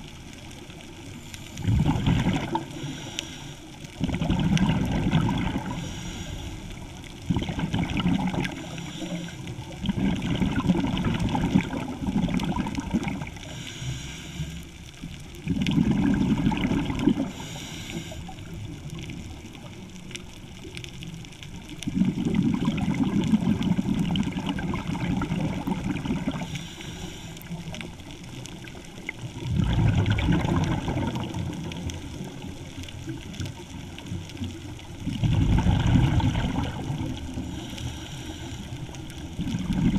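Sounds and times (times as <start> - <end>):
exhaled bubbles underwater: 0.0 - 14.0, 14.8 - 39.9
regulator inhalation hiss: 2.6 - 3.8, 5.7 - 7.0, 8.6 - 9.6, 13.4 - 14.8, 17.3 - 18.5, 26.4 - 27.6, 37.4 - 39.0.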